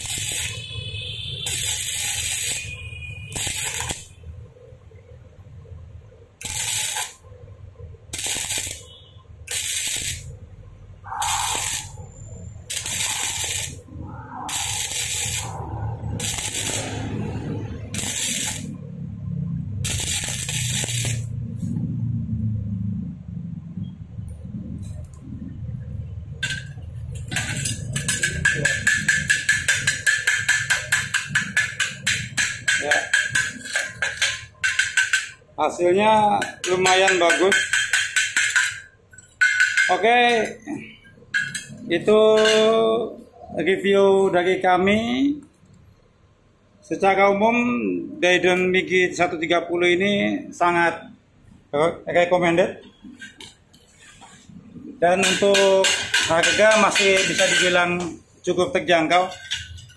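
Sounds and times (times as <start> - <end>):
steel ringing: 0.0 - 4.2, 8.2 - 10.3, 11.0 - 18.9
welder arc crackling and hissing: 0.0 - 4.8, 6.3 - 21.8
chipping hammer tapping steel: 26.4 - 35.4, 36.2 - 40.5, 55.1 - 58.1.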